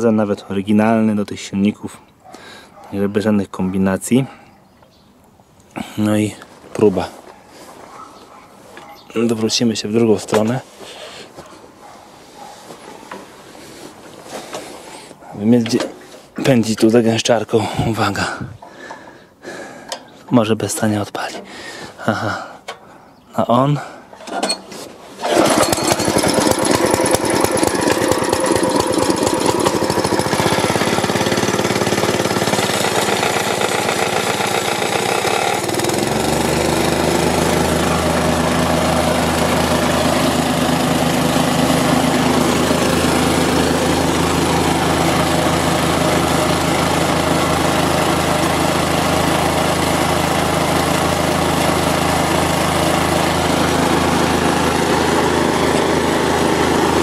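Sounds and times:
petrol engine running: 25.2 - 57.0
plate compactor pounding rattle: 25.2 - 57.0.

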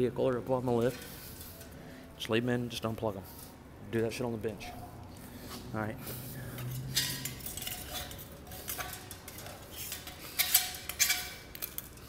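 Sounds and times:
metal rod scraping inside housing: 6.6 - 11.7.

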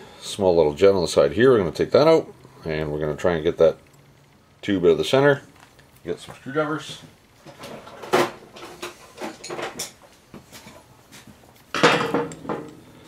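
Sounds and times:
tools clattering: 7.5 - 10.0, 11.7 - 12.9.

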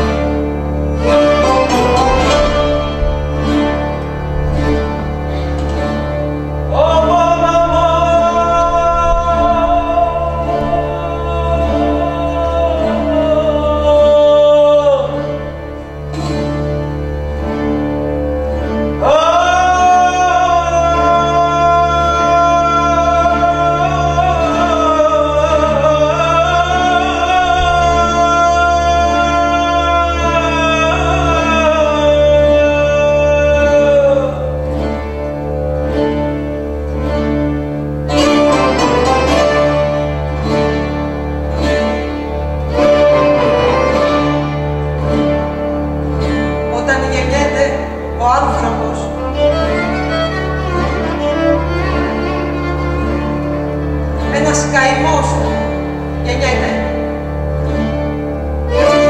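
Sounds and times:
person singing long notes: 0.0 - 17.0, 19.0 - 35.2
low drone: 0.0 - 19.2
plucked string notes: 0.0 - 59.0.

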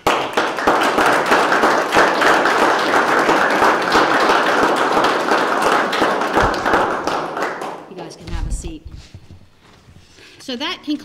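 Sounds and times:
people applauding: 0.0 - 8.1.

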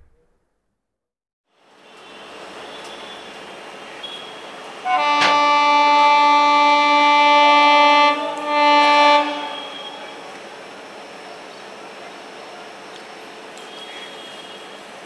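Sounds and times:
train horn blasts: 4.1 - 10.4.

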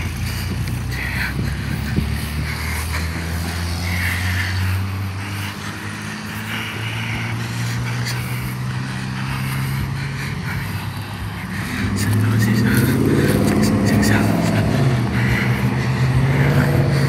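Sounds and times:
vehicle engine running: 0.0 - 17.0.

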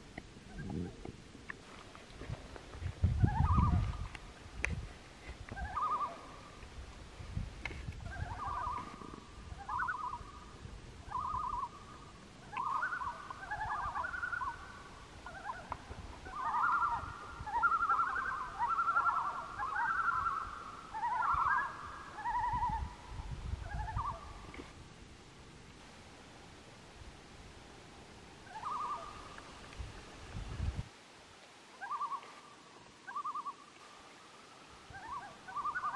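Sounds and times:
loons tremolo calls: 3.2 - 4.2, 5.6 - 6.6, 8.0 - 24.4, 28.4 - 29.4, 31.8 - 32.4, 33.1 - 33.7, 34.9 - 35.9.

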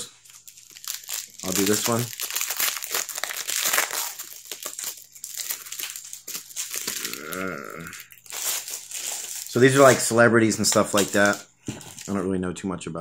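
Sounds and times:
plastic wrappers crinkling: 0.0 - 12.3
person humming: 6.8 - 8.1.

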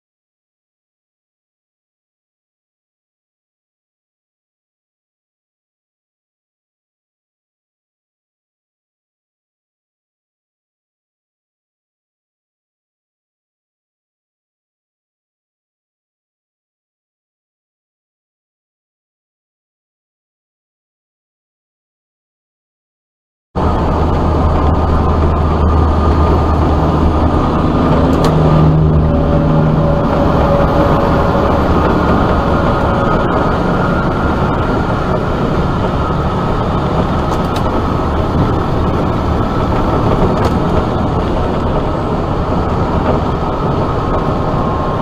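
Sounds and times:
low engine drone: 23.6 - 45.0
tyre and wind rush: 23.6 - 45.0.

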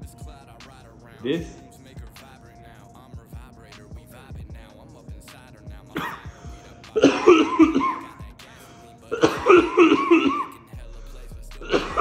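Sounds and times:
man coughing hard: 1.2 - 1.6, 5.9 - 8.3, 9.1 - 10.7, 11.6 - 12.0.

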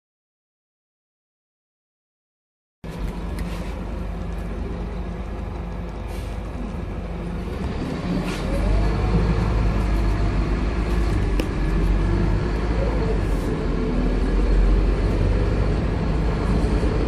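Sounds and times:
bus engine running: 2.8 - 17.0
road and body noise: 2.8 - 17.0.

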